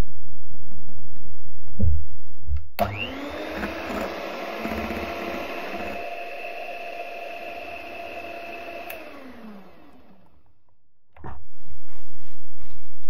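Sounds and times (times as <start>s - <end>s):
electric hand mixer running: 2.8s - 10.4s.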